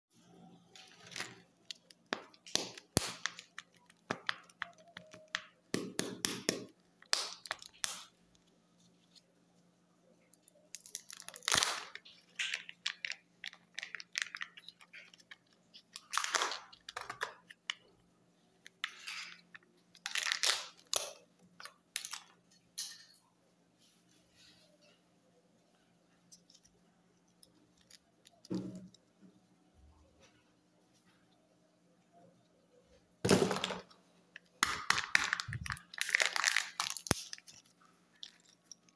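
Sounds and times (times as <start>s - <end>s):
foil wrapper crinkling and tearing: 10.5s - 17.8s, 18.8s - 22.2s, 34.6s - 38.9s.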